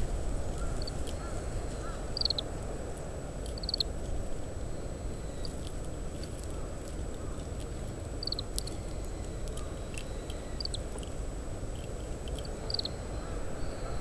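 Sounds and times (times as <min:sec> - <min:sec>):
low rumble of wind: 0:00.0 - 0:14.0
finch contact calls: 0:08.2 - 0:11.1, 0:12.4 - 0:14.0.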